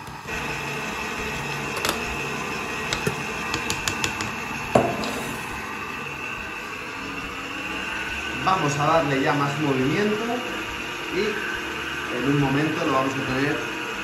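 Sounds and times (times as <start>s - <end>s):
electric stand mixer running: 0.0s - 14.0s
things clicking against mixing bowl: 2.9s - 4.4s.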